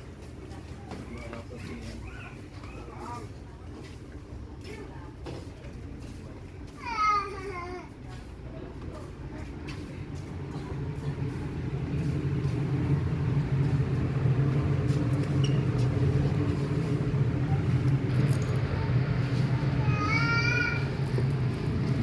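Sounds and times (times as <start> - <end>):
ferry machinery low drone: 8.0 - 22.0.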